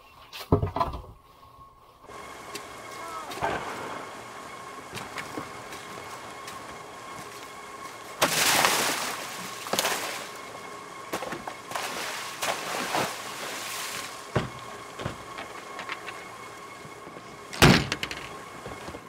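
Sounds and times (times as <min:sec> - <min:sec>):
fish and ice sliding: 0:05.5 - 0:10.8, 0:11.7 - 0:14.3.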